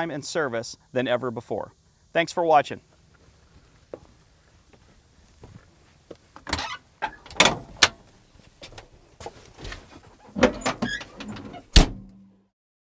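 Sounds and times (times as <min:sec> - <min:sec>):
mechanical clanks and thuds: 0:06.4 - 0:08.0, 0:09.6 - 0:12.3.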